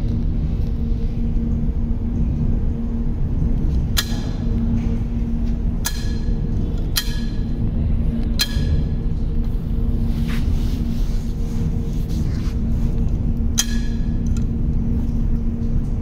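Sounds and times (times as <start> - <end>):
low machinery hum: 0.0 - 16.0
metallic gauge clicks: 5.8 - 7.4.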